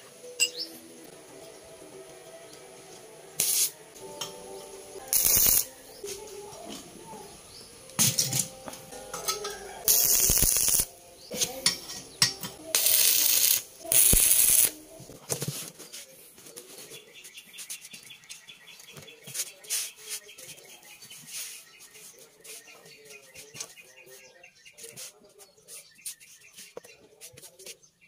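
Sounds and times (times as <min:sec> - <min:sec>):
sharp metal clinks: 0:00.4 - 0:00.7, 0:08.0 - 0:14.7
hissing welding arc: 0:03.4 - 0:03.8, 0:05.0 - 0:06.2, 0:09.4 - 0:14.9.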